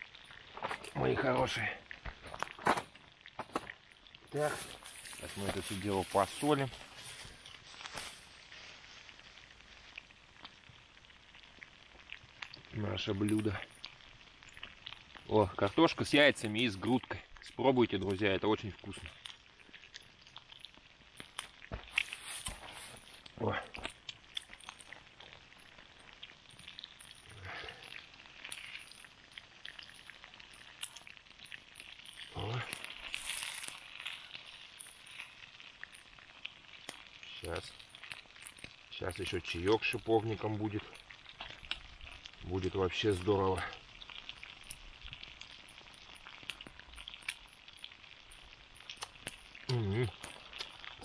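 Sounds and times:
campfire crackling: 0:00.0 - 0:51.0
food sizzling in a pan: 0:01.3 - 0:51.0
food stirred in a pan: 0:18.9 - 0:51.0.

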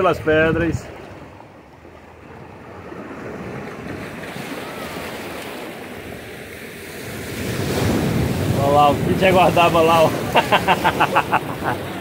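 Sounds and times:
surf washing over rocks: 0:02.7 - 0:12.0.

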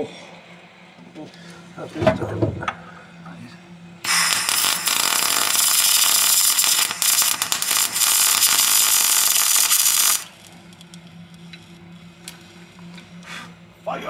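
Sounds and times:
welder arc crackling and hissing: 0:04.0 - 0:13.6.

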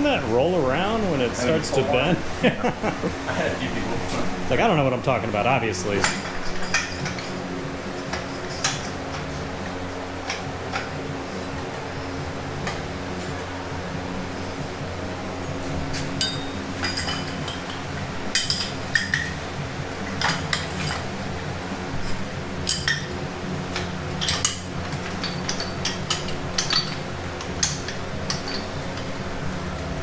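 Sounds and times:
steady low hum: 0:00.0 - 0:30.0
steel parts clinking and rattling: 0:05.8 - 0:11.9, 0:15.4 - 0:30.0.

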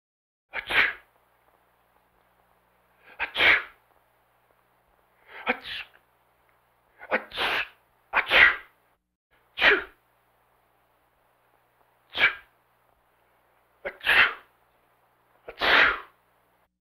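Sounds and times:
man sneezing: 0:00.5 - 0:01.1, 0:03.0 - 0:03.8, 0:05.3 - 0:06.0, 0:07.0 - 0:08.7, 0:09.6 - 0:10.0, 0:12.1 - 0:12.5, 0:13.8 - 0:14.5, 0:15.5 - 0:16.2.

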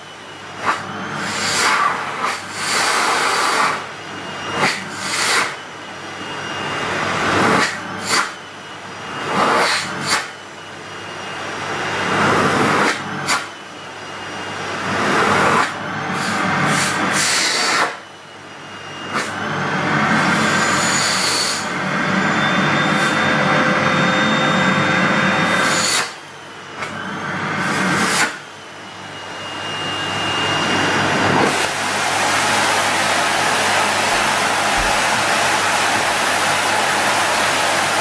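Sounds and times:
vacuum cleaner running: 0:00.0 - 0:38.0
sharp rushes of air: 0:30.6 - 0:38.0.

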